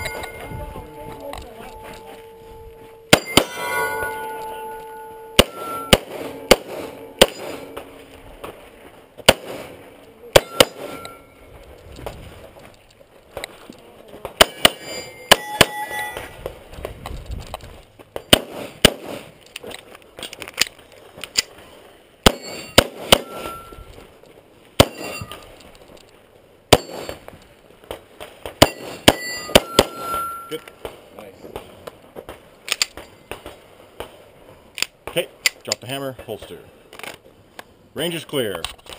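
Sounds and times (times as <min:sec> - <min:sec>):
steel targets pinging: 0:00.0 - 0:08.2, 0:09.2 - 0:11.5, 0:14.4 - 0:16.4, 0:22.2 - 0:24.0, 0:24.8 - 0:25.5, 0:26.7 - 0:27.3, 0:28.6 - 0:30.8
pistol shots: 0:03.1 - 0:04.2, 0:05.4 - 0:08.0, 0:09.2 - 0:11.2, 0:14.4 - 0:15.8, 0:18.3 - 0:19.3, 0:22.2 - 0:23.7, 0:24.8 - 0:25.4, 0:26.7 - 0:27.2, 0:28.5 - 0:30.4.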